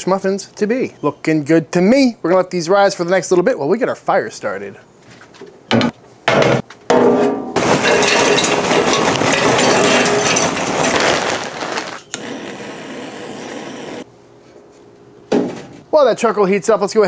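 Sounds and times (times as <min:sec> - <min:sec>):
charcoal clattering into metal: 0:06.4 - 0:12.1
butane torch hissing: 0:11.5 - 0:14.1.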